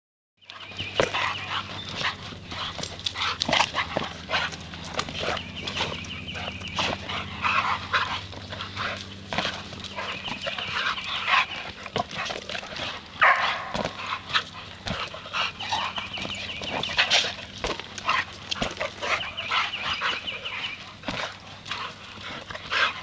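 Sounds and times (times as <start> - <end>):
dogs barking and whining: 0.4 - 23.0.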